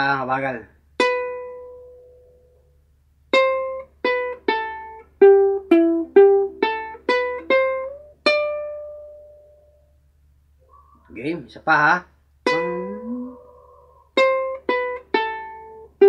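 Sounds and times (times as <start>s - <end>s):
ukulele plucked melody: 1.0s - 2.3s, 3.3s - 9.7s, 12.4s - 13.5s, 14.2s - 16.0s.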